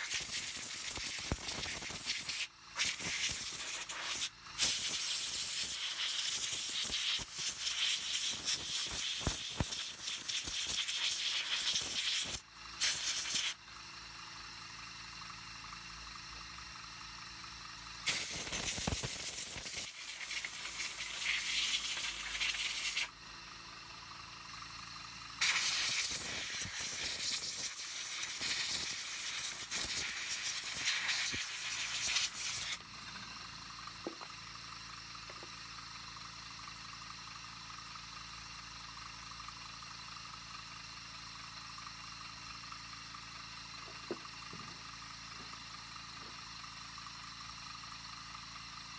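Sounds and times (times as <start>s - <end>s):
air blow gun hissing: 0.0s - 13.6s, 18.0s - 23.2s, 25.4s - 33.4s.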